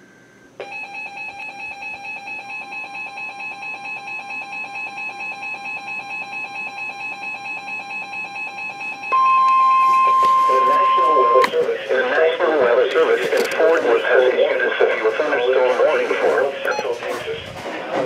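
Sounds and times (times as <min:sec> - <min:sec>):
steady warning alarm tone: 0:00.6 - 0:12.4
rapid pulsing electronic beep: 0:00.7 - 0:11.5, 0:16.6 - 0:17.0.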